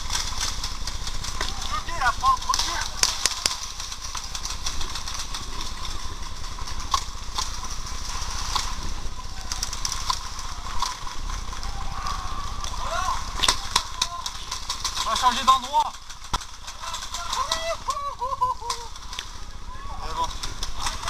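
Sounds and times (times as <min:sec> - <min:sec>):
distant voices calling: 0:00.0 - 0:21.0
low rumble: 0:00.0 - 0:21.0.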